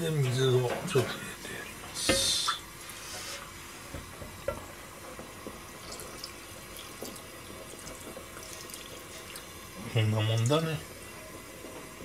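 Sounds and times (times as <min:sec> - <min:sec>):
low hiss: 0:00.0 - 0:12.0
water running into a pot: 0:00.0 - 0:12.0.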